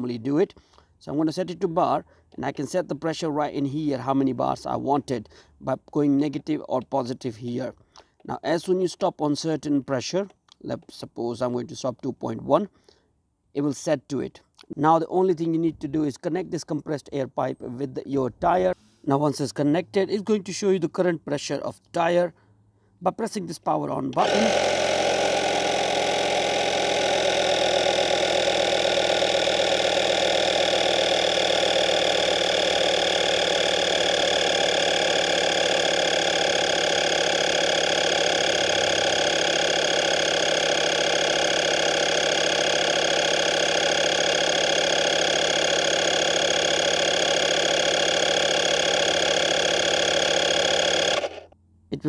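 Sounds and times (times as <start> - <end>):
air compressor running: 24.1 - 51.6.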